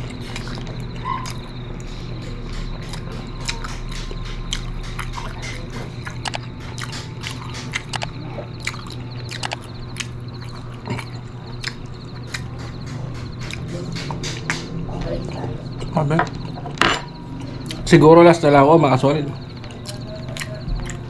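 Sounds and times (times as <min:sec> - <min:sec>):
wet chewing and smacking: 0:00.0 - 0:16.6, 0:19.4 - 0:21.0
steady low hum: 0:00.0 - 0:21.0
sharp clicks: 0:02.2 - 0:10.2.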